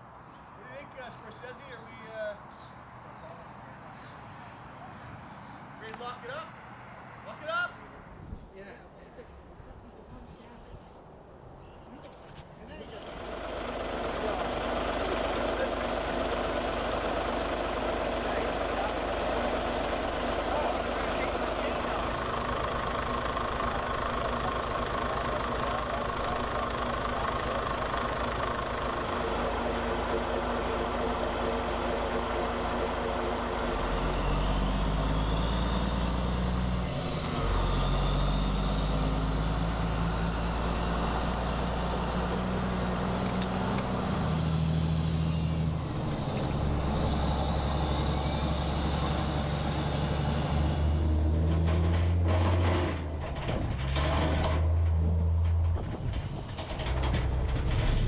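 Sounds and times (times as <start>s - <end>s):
diesel truck engine under load: 12.8s - 58.0s.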